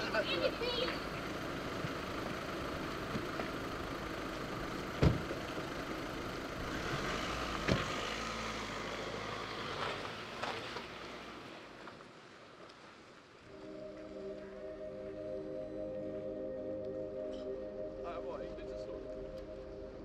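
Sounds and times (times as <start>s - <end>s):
low outdoor rumble: 0.0s - 12.6s, 13.4s - 20.0s
car doors slamming shut: 5.0s - 5.4s, 7.6s - 8.0s.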